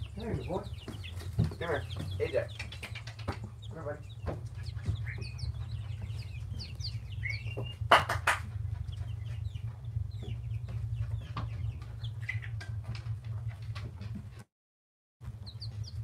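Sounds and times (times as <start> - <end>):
steady low hum: 0.0 - 14.0
chicks peeping: 0.0 - 14.4, 15.2 - 16.0
sharp knock: 7.9 - 8.5.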